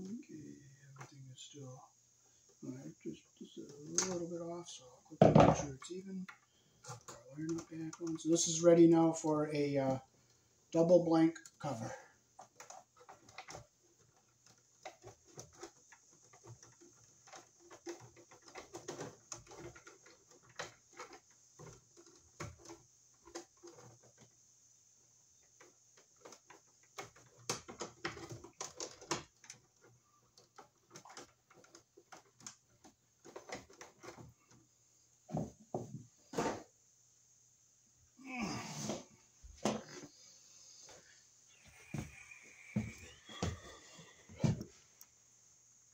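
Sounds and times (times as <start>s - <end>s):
electrical cable rustling: 2.5s - 24.5s, 25.4s - 36.7s.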